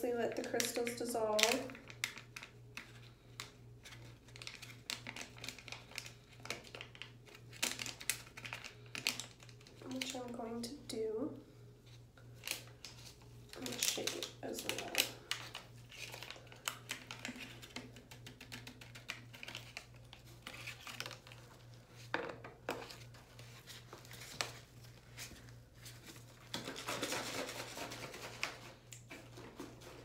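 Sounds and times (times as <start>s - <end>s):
paper packet crinkling: 0.3s - 10.4s, 12.4s - 22.1s
plastic bottle being shaken: 26.2s - 30.0s.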